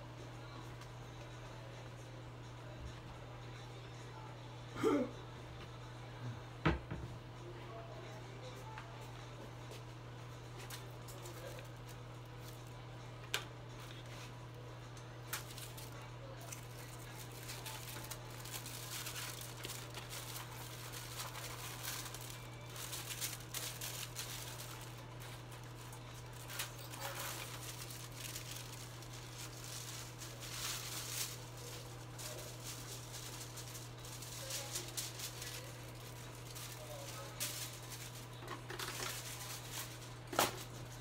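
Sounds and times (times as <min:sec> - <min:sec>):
steady low hum: 0:00.0 - 0:41.0
rustling and crinkling: 0:15.3 - 0:41.0.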